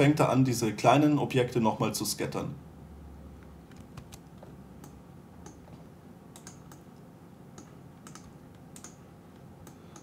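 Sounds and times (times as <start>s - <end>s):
computer keys and mouse clicking: 3.7s - 10.0s.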